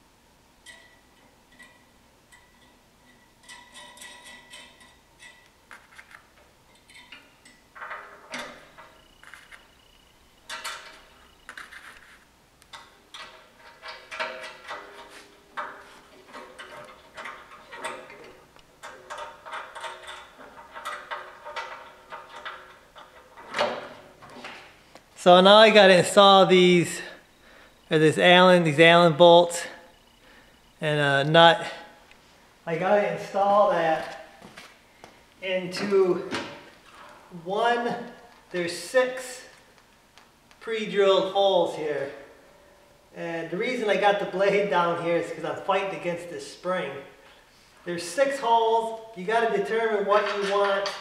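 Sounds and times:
metal hardware clinking and rattling: 0:00.6 - 0:09.7, 0:10.4 - 0:11.8, 0:12.7 - 0:24.5.

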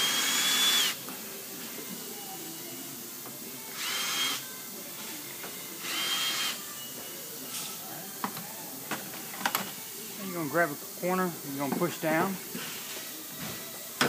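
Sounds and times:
cordless drill whining: 0:00.0 - 0:01.0, 0:03.7 - 0:04.4, 0:05.8 - 0:06.6.

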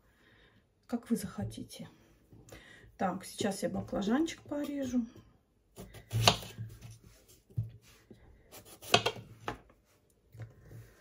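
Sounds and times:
knife chopping on cutting board: 0:05.8 - 0:06.8, 0:08.5 - 0:09.6.

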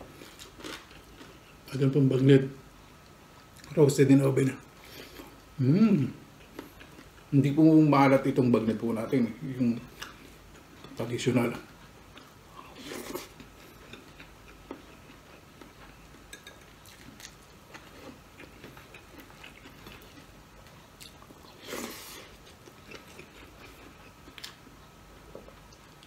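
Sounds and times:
person chewing: 0:00.0 - 0:01.6, 0:04.9 - 0:07.3, 0:11.6 - 0:24.6.

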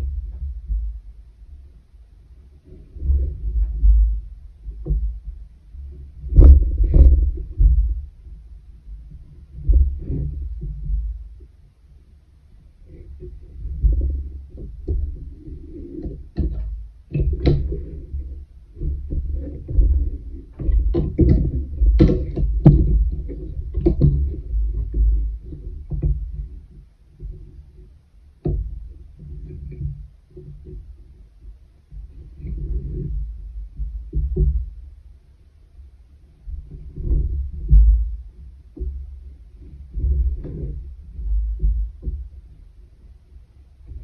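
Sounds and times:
wooden loom thumps and knocks: 0:06.2 - 0:08.1, 0:13.3 - 0:26.6, 0:28.4 - 0:30.8, 0:32.0 - 0:34.9, 0:36.5 - 0:42.6.

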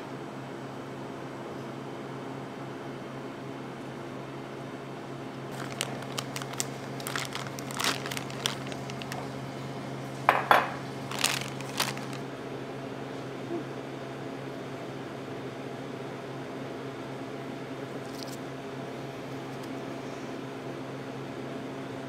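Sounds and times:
steady low hum: 0:04.5 - 0:13.6
plastic bag crinkling: 0:05.5 - 0:09.5, 0:10.7 - 0:12.3, 0:18.1 - 0:18.4.

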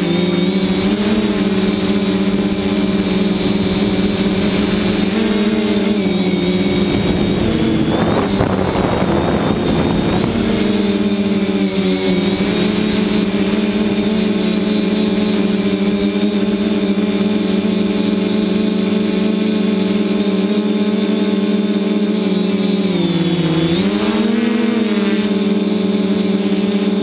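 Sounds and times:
drone propellers humming: 0:00.0 - 0:27.0
rush of air noise: 0:00.6 - 0:14.0.

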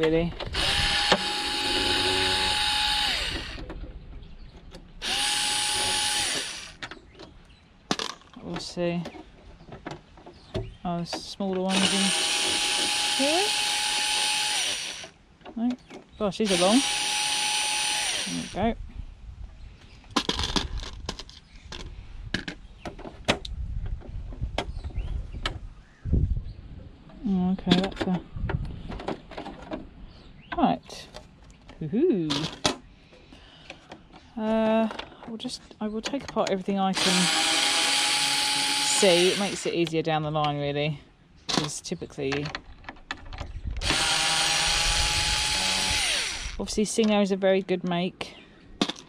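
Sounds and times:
electric screwdriver motor whine: 0:00.5 - 0:03.6, 0:05.0 - 0:06.8, 0:11.7 - 0:15.1, 0:16.5 - 0:18.6, 0:37.0 - 0:39.7, 0:43.8 - 0:46.6.

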